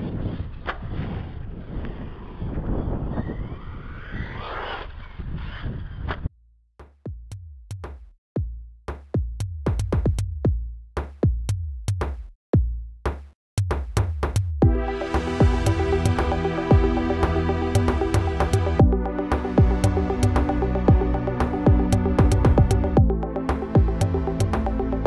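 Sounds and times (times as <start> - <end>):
wind rumbling on microphone: 0.0 - 6.3
electronic music with drum-machine beat: 6.8 - 25.0.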